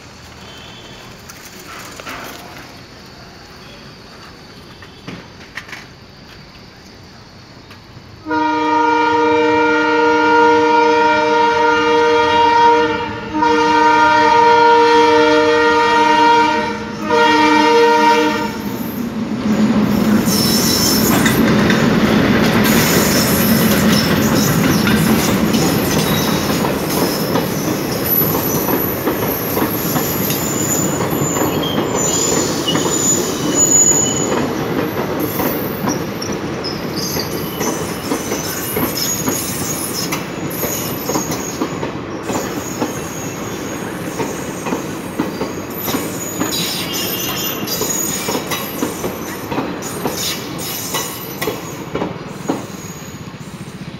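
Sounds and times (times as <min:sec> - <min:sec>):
locomotive horns multi-tone chord: 0:08.2 - 0:18.7
train wheels clattering over joints: 0:20.1 - 0:53.3
high-pitched wheel squeals: 0:27.1 - 0:34.5, 0:45.7 - 0:51.4.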